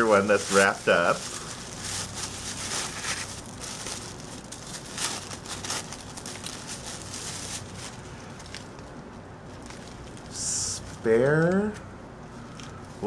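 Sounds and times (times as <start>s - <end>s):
tissue paper crinkling: 0.0s - 10.3s.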